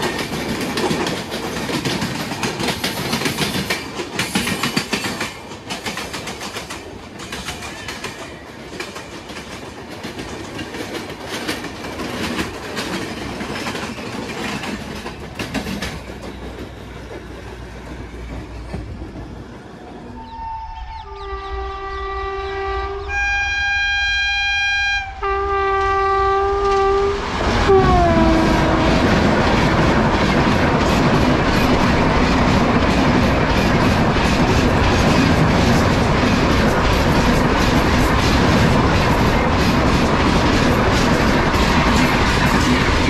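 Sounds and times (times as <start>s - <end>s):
wheels clacking over rail joints: 0.0s - 20.1s, 26.7s - 43.0s
train coaches rushing past: 0.0s - 24.1s, 24.9s - 43.0s
locomotive two-tone air horn: 20.2s - 29.0s.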